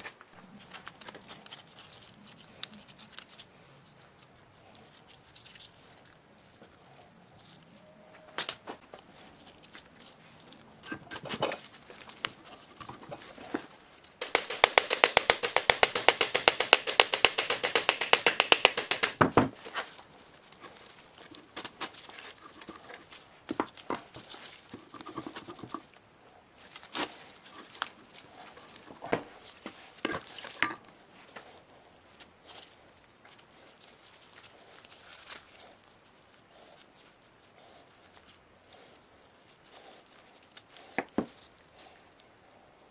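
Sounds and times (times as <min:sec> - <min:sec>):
rapid mechanical clicking: 0:14.2 - 0:19.2
tools and metal parts clicking: 0:14.2 - 0:19.2.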